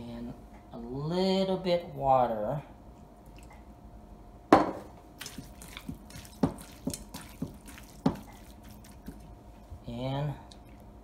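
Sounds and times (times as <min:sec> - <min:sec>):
wet slaps and taps on bowl: 0:05.2 - 0:09.3
fingers squishing wet meat: 0:05.2 - 0:09.8.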